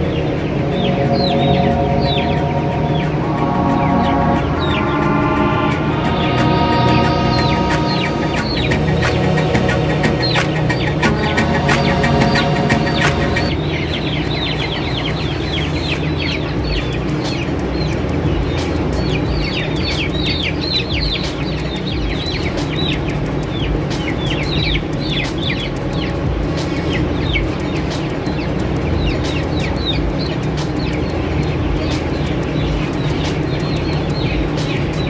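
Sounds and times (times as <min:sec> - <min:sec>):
low hum: 0:00.0 - 0:19.3.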